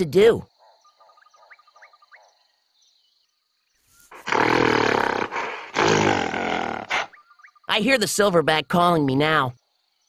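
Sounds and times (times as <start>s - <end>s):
faint chirping: 0.0s - 8.3s
gorilla roaring: 4.1s - 7.1s.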